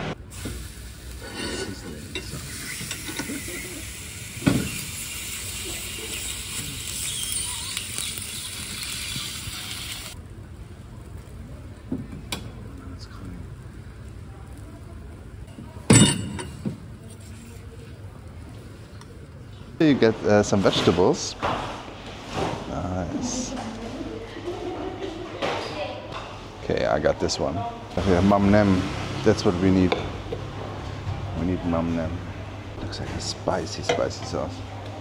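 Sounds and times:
food sizzling in a pan: 0.2 - 10.2.

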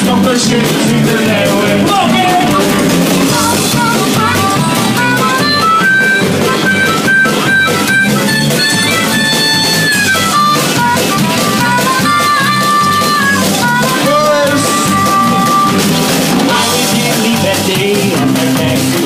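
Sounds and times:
bass guitar: 0.0 - 19.0
drum kit: 0.0 - 19.0
electric guitars: 0.0 - 19.0
guitar lead bending notes: 0.0 - 19.0.

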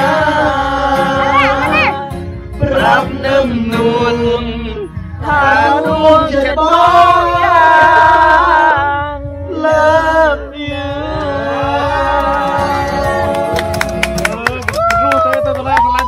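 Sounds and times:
man singing into a microphone: 0.0 - 13.6
acoustic guitar strumming: 0.0 - 14.6.

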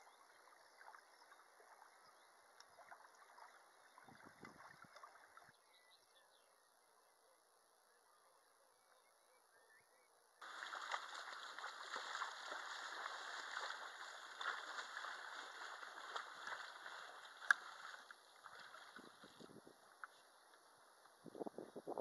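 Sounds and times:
water sloshing around legs: 0.2 - 5.6, 10.4 - 20.4
sharp splash or knock: 10.4 - 19.0.

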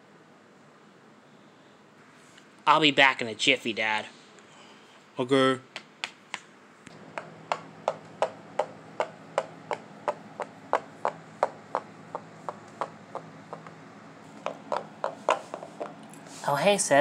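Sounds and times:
faint steady hum: 0.0 - 17.0
toy tapping on wood: 7.1 - 13.8, 14.4 - 16.0.

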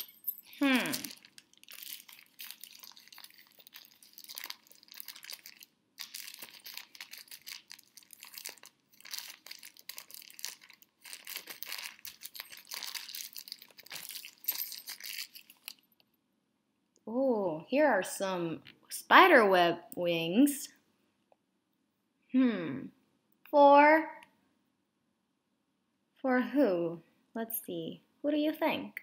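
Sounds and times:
wrapping paper crinkling and tearing: 0.6 - 15.8.

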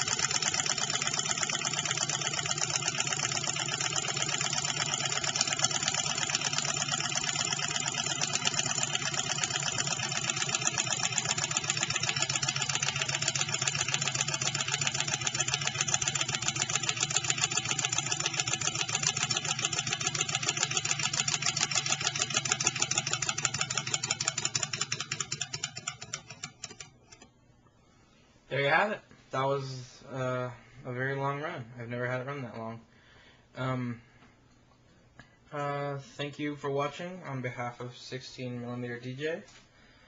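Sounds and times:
model engine mechanical clatter: 0.0 - 27.3.

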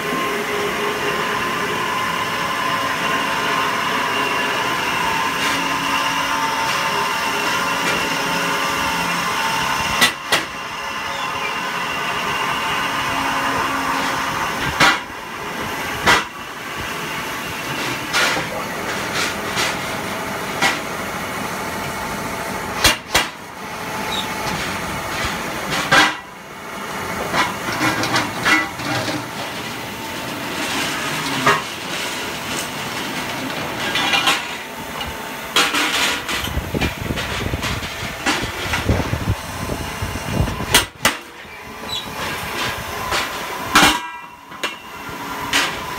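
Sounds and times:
band saw cutting metal pipe: 0.0 - 21.0.

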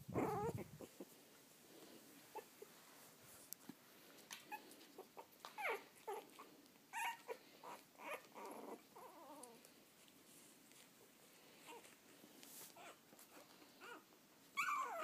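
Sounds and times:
puppies whimpering and squeaking: 0.1 - 1.1, 4.5 - 9.6, 12.7 - 15.0.

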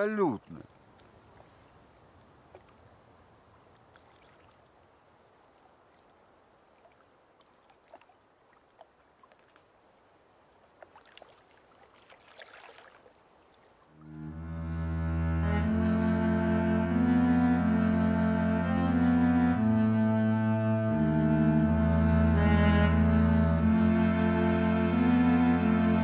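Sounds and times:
bowed-string music: 14.0 - 26.0.

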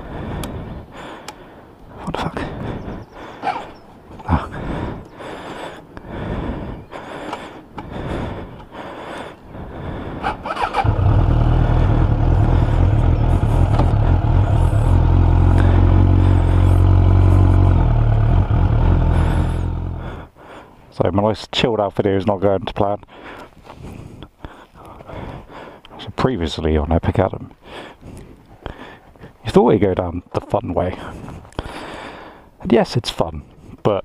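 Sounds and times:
motorcycle engine running: 10.5 - 20.3.

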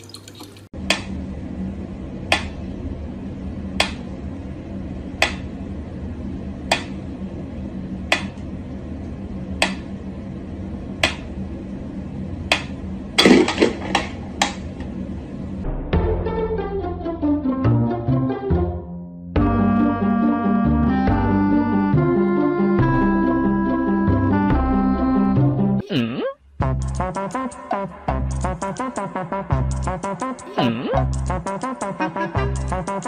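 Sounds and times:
steady low hum: 0.8 - 16.0, 19.4 - 33.0.

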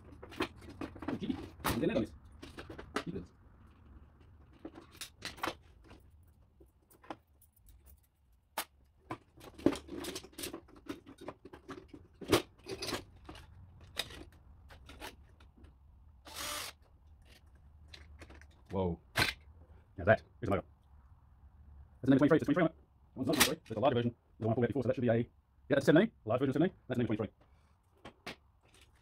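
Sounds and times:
short rasping burst: 16.3 - 16.8.

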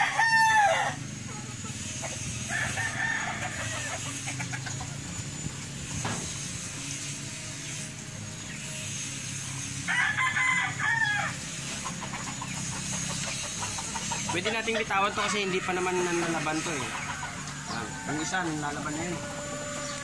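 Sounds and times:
rooster crowing: 0.0 - 1.0, 2.4 - 4.2, 9.8 - 11.5, 13.8 - 20.0.

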